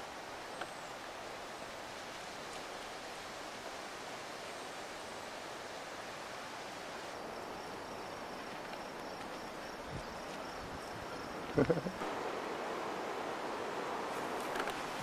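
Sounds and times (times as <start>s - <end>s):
steady outdoor hiss: 0.0s - 15.0s
insect trilling: 7.2s - 15.0s.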